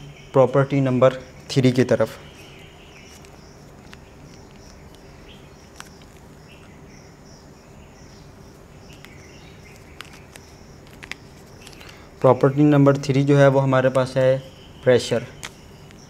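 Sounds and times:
cricket chirping: 0.0 - 16.0
low hum of room tone: 0.0 - 16.0
marker pens clicking: 3.1 - 6.7, 8.9 - 12.6.

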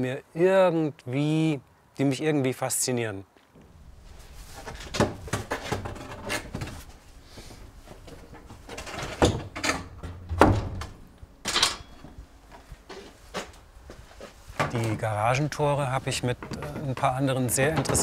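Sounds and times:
wooden garage doors knocking and rattling: 8.2 - 12.1, 16.4 - 18.0.

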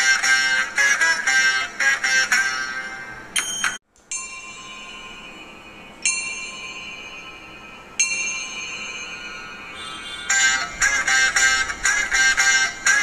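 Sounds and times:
bell-like ringing tone: 3.4 - 10.6.

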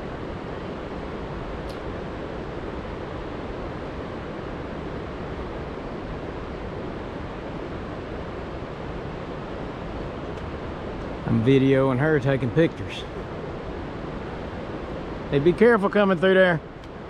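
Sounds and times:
river rushing: 0.0 - 17.0.

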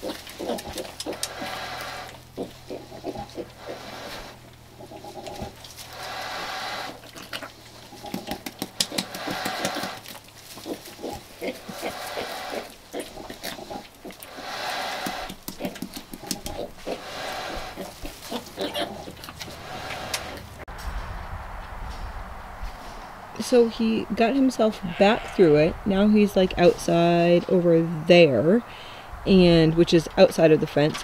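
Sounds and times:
pigs calling: 0.0 - 20.6, 24.6 - 25.7
straw rustling and crackling: 0.0 - 21.0.

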